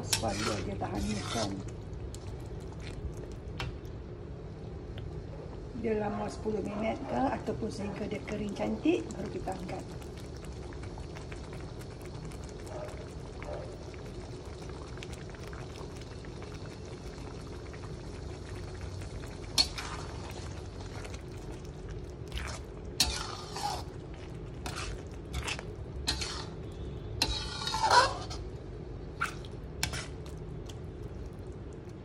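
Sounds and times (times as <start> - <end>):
spatula scraping a pan: 0.0 - 1.7, 19.6 - 20.4, 22.5 - 28.5, 29.8 - 30.2
sauce simmering in a pan: 0.0 - 32.0.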